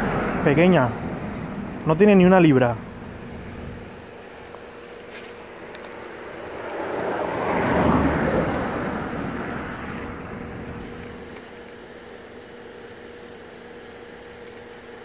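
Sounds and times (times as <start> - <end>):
vehicle passing by: 0.0 - 1.2, 5.4 - 11.1.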